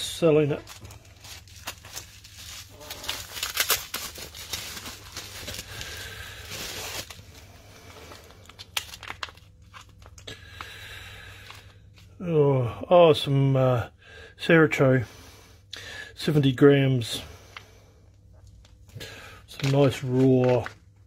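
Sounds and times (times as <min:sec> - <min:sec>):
plastic bags crinkling: 0:00.2 - 0:11.8, 0:18.4 - 0:21.0.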